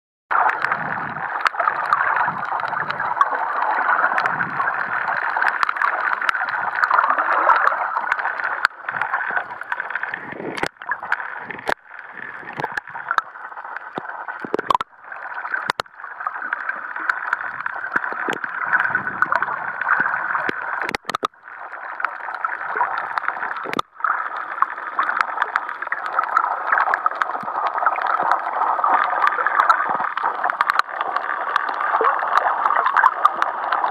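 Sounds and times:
clicks: 13.9s - 14.9s, 20.4s - 21.3s.

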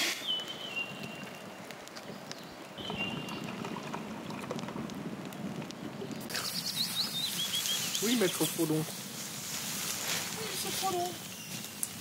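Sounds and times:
campfire crackling and popping: 0.0s - 12.0s.

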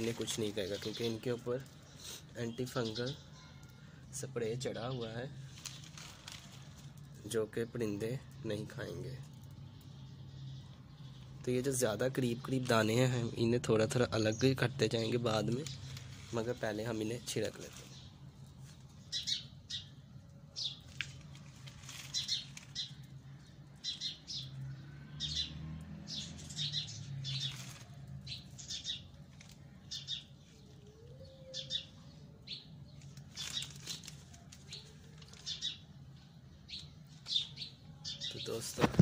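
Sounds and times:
plastic seed packet rustling: 0.0s - 1.9s, 4.8s - 8.0s, 14.5s - 19.2s, 20.7s - 23.4s, 26.3s - 30.9s, 32.9s - 35.8s.

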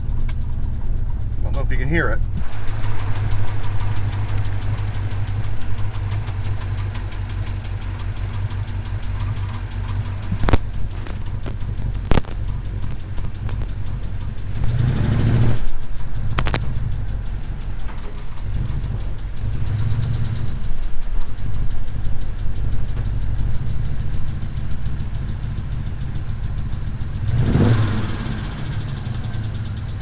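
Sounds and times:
engine running at low speed: 0.0s - 30.0s
light engine tapping: 0.0s - 30.0s
sharp clicks: 2.8s - 24.6s.

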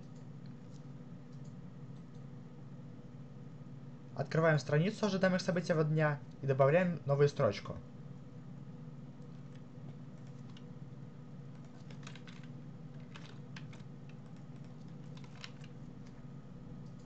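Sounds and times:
steady low hum: 0.0s - 17.0s
keyboard keys clicking: 10.2s - 10.7s, 11.5s - 16.2s.

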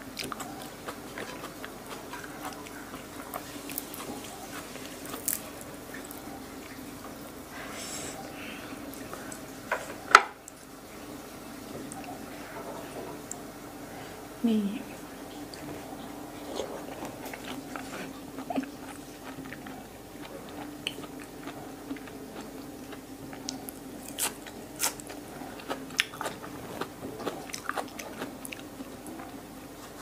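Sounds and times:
chewing and crunching: 0.0s - 8.3s, 15.3s - 30.0s.

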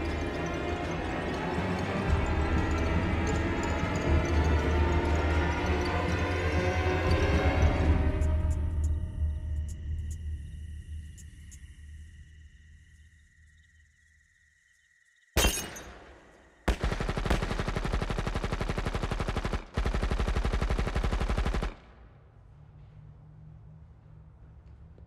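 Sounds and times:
machine-gun fire: 15.4s - 22.1s.

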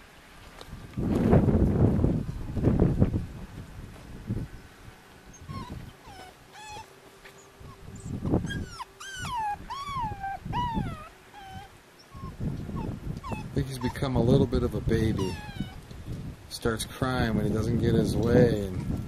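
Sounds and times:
dull low thumps: 0.8s - 4.6s
puppy whining: 5.3s - 16.0s.

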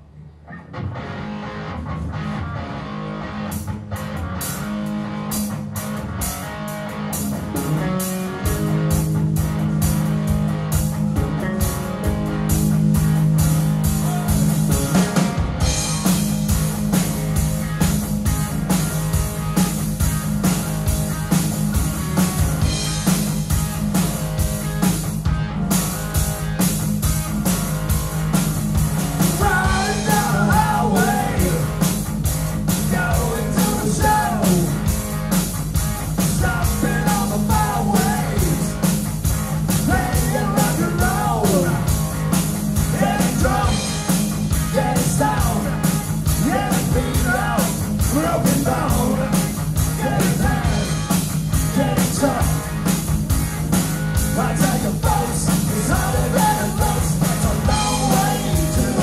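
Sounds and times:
bass guitar: 0.0s - 59.0s
electric guitar: 0.1s - 59.0s
drum kit beat: 4.0s - 59.0s
man singing lead: 13.9s - 14.6s, 29.2s - 31.9s, 32.8s - 34.9s, 36.2s - 38.9s, 39.8s - 42.0s, 42.8s - 52.8s, 54.2s - 59.0s.

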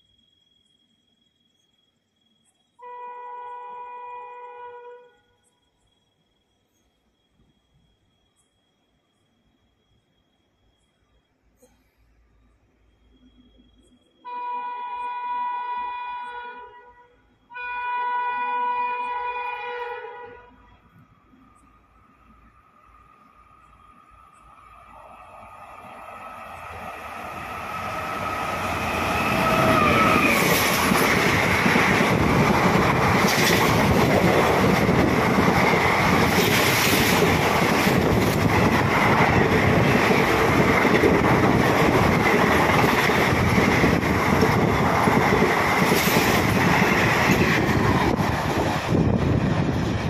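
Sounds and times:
passenger train rumbling past: 17.3s - 50.0s.

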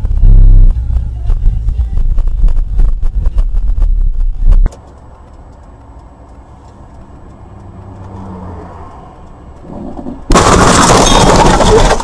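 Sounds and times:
loud low rumble: 0.0s - 4.7s
car engine and road noise: 0.0s - 12.0s.

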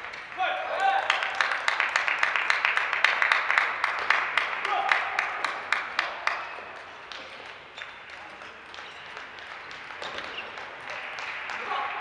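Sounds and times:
people clapping: 0.0s - 12.0s
sports hall hum: 0.0s - 12.0s
table tennis balls clicking: 6.3s - 11.7s.

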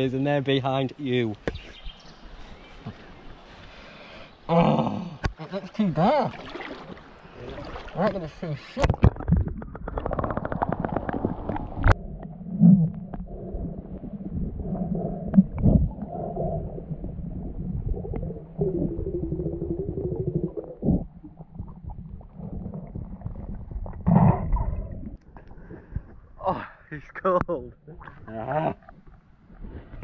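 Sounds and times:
underwater river rumble and bubbles: 6.3s - 26.4s.

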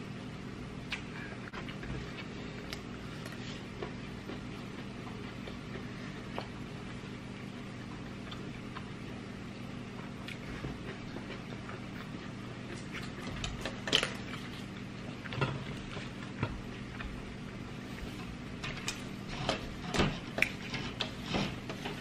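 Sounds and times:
steady low hum: 0.0s - 22.0s
chewing and mouth clicks: 0.8s - 7.0s, 7.9s - 9.0s.

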